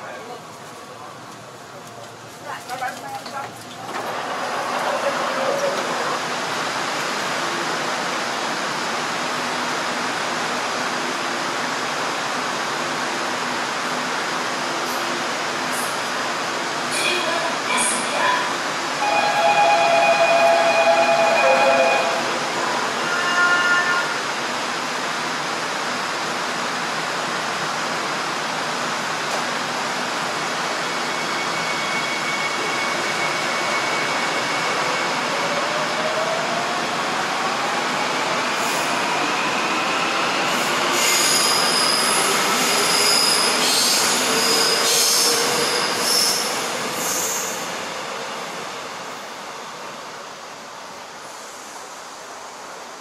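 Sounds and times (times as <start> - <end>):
subway train rumble: 0.0 - 53.0
steel wheel squeal: 41.0 - 47.4.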